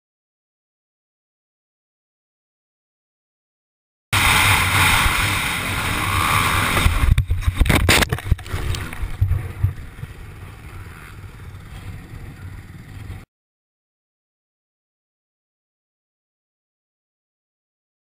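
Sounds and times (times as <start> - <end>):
dirt bike engine: 4.1 - 13.2
wind rush on camera: 4.2 - 13.2.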